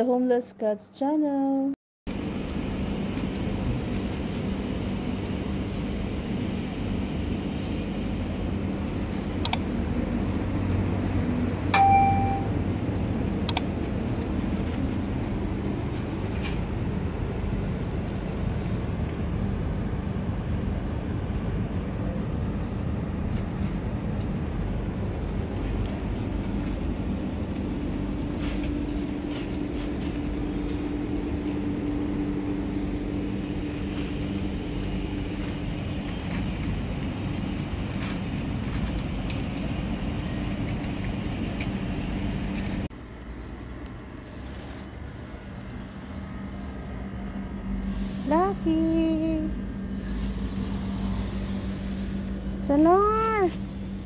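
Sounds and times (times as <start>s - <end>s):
low mechanical hum: 1.3s - 54.0s
low outdoor rumble: 2.1s - 54.0s
short bell ding: 11.8s - 12.6s.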